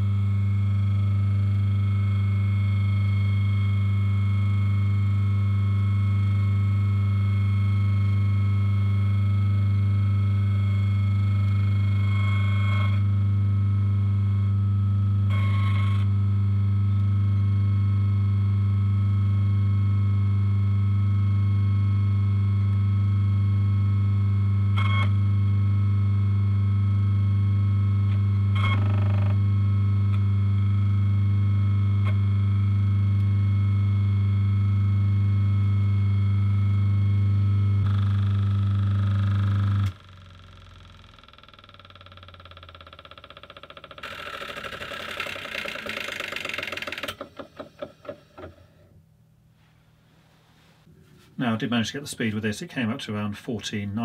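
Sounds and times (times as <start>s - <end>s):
electric motor humming: 0.0s - 48.8s
high motor whine: 0.0s - 48.9s
motor spinning down: 37.5s - 48.7s.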